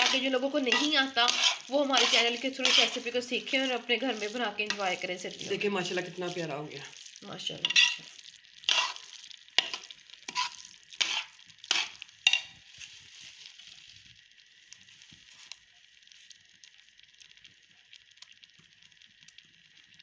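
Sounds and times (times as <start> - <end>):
metal spatula scraping pot: 0.0 - 6.5, 7.6 - 12.9
food sizzling faintly: 0.0 - 20.0.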